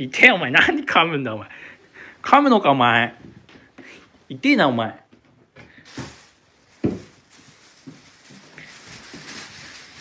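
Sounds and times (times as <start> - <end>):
plastic bag rustling and crinkling: 5.8 - 10.0.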